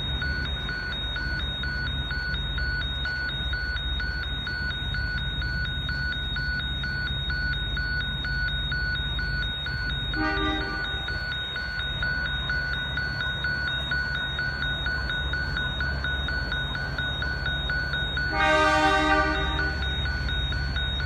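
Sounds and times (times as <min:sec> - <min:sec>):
low steady rumble: 0:00.0 - 0:21.0
level crossing bell ringing: 0:07.8 - 0:21.0
horn note: 0:10.2 - 0:10.8, 0:18.4 - 0:19.8.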